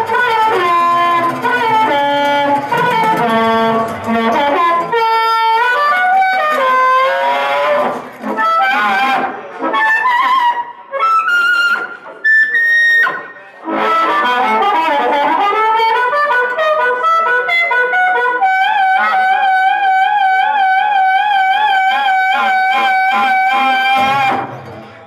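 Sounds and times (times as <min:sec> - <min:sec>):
acoustic guitar: 0:00.0 - 0:08.6
blues harmonica solo: 0:00.0 - 0:24.6.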